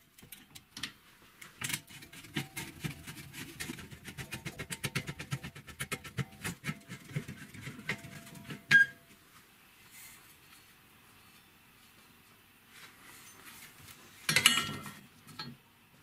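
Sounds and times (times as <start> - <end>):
metallic clank with ring: 14.3 - 15.6.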